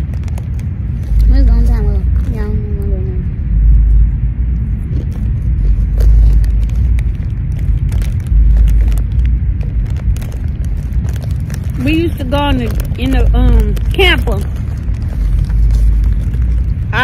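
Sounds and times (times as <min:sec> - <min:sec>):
snack bags crinkling: 0:00.0 - 0:01.4, 0:04.8 - 0:17.0
wind buffeting microphone: 0:00.0 - 0:17.0.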